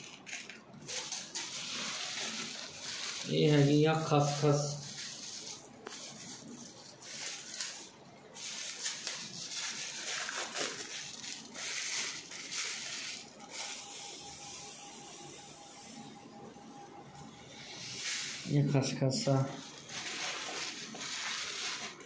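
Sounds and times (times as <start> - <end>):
plastic bag crinkling: 0.0 - 13.7, 19.2 - 22.0.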